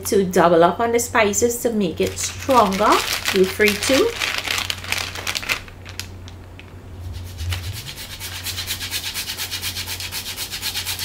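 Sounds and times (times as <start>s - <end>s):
nutmeg scraping on a grater: 8.0s - 11.0s.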